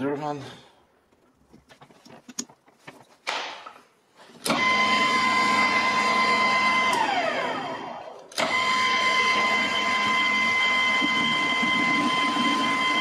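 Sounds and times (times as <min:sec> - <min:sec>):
metal lathe motor whine: 0:04.5 - 0:13.0.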